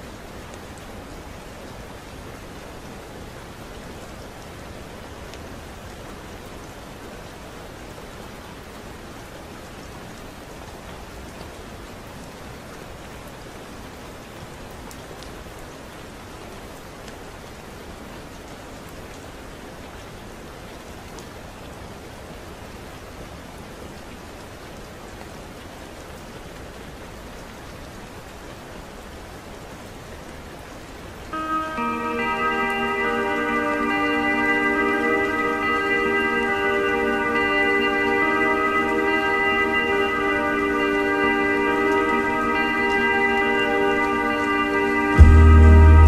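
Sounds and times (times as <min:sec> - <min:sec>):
steady rain: 0:00.0 - 0:46.0
soft music with held tones: 0:31.3 - 0:46.0.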